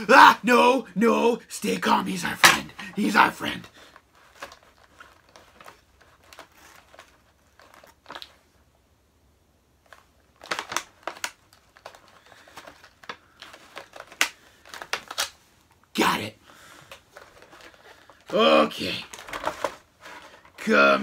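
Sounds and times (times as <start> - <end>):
plastic packaging crinkling: 3.8 - 8.6, 9.8 - 15.9, 16.5 - 20.7.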